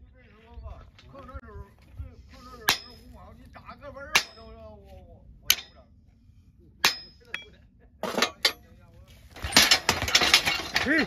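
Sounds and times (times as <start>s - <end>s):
hammer striking steel horseshoe: 2.6s - 3.2s, 4.1s - 4.6s, 5.5s - 5.8s, 6.8s - 8.7s, 9.4s - 11.0s.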